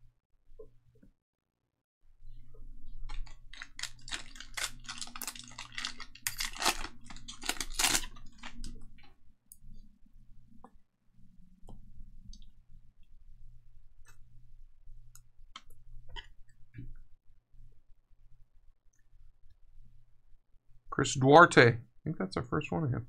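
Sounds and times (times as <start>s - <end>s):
foil wrapper crinkling and tearing: 3.1s - 8.8s.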